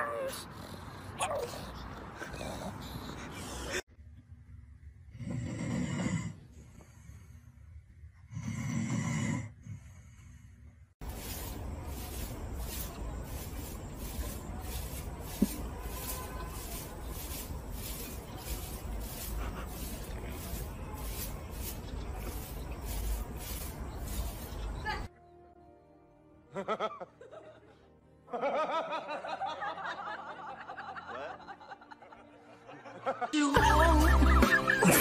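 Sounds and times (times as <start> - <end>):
dog snoring: 5.1 - 6.4, 8.3 - 10.2.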